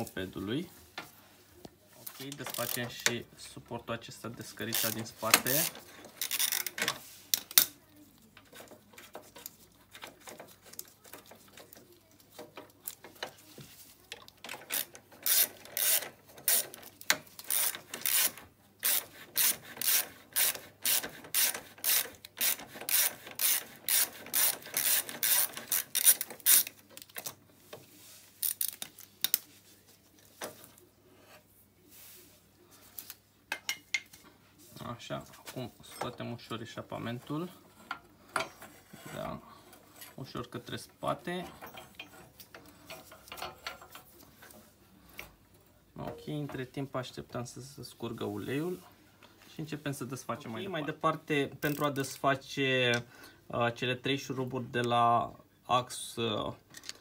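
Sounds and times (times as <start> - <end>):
ratchet wrench clicking: 14.7 - 16.7, 17.4 - 26.7.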